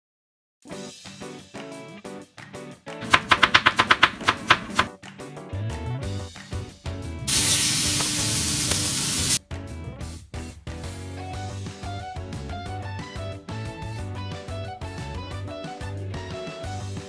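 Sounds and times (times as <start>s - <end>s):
knife chopping cabbage on board: 3.0s - 4.9s
patties sizzling in frying pan: 7.3s - 9.4s.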